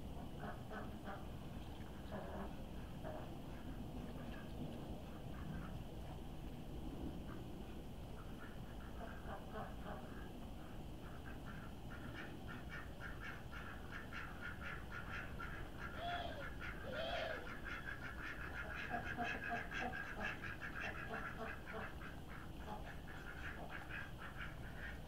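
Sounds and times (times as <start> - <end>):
duck quacks: 0.4 - 1.3, 8.2 - 25.0
ducklings peeping: 8.1 - 25.0.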